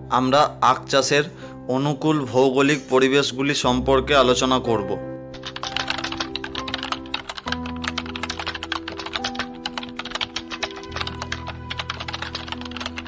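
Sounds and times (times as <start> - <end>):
soft background music: 0.0 - 13.0
rapid keyboard typing clicks: 5.4 - 13.0.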